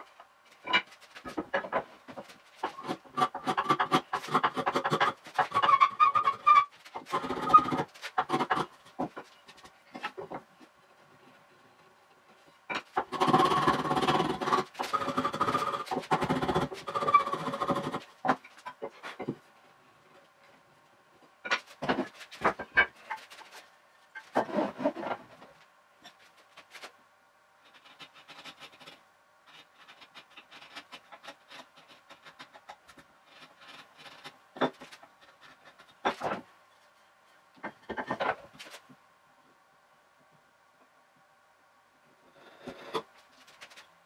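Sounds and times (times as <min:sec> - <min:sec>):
wood knocking and scraping: 0:00.0 - 0:11.4, 0:12.7 - 0:19.4, 0:21.4 - 0:27.0, 0:27.7 - 0:36.5, 0:37.6 - 0:39.0
faint steady hum: 0:00.0 - 0:44.0
quiet rubbing on wood: 0:27.6 - 0:38.9.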